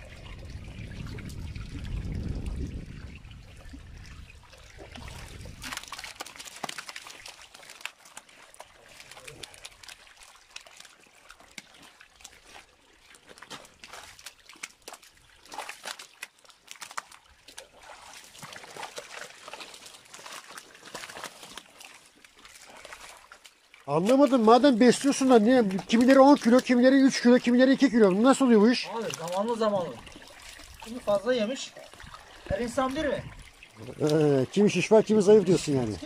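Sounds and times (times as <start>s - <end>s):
low rumble: 0.0s - 5.6s
water trickling: 0.0s - 36.0s
fish flopping on wet concrete: 4.8s - 27.5s, 28.7s - 31.2s.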